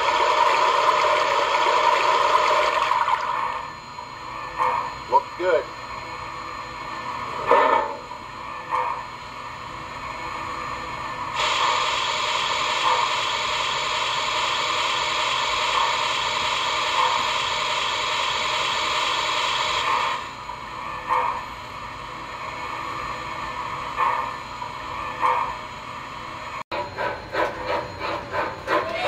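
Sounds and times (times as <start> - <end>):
model locomotive steam hiss: 11.4 - 20.4.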